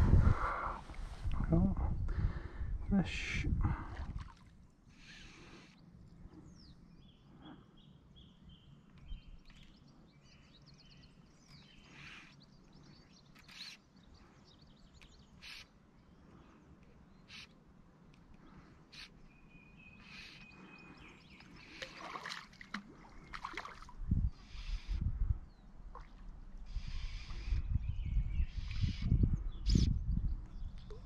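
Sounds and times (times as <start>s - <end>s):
faint birdsong: 0.2s - 31.0s.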